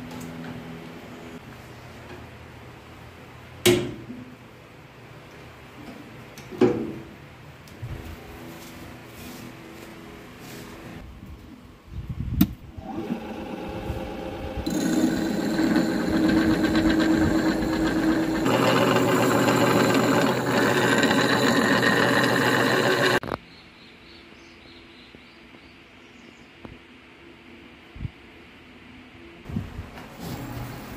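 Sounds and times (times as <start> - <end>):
sharpening grinder humming: 12.8 - 23.2
wood lathe motor humming: 12.8 - 23.2.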